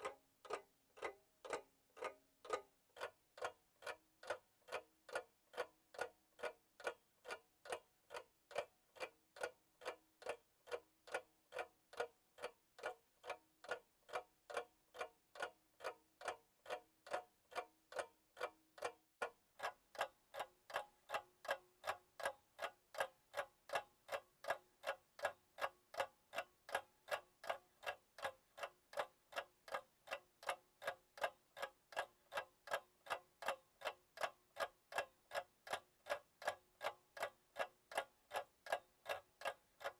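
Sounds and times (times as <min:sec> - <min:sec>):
clock ticking: 0:00.0 - 0:39.9.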